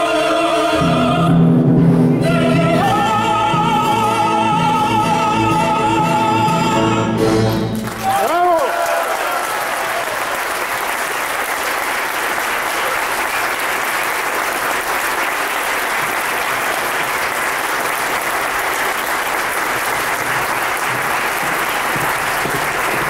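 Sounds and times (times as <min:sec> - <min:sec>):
audience applauding: 0:07.5 - 0:23.0.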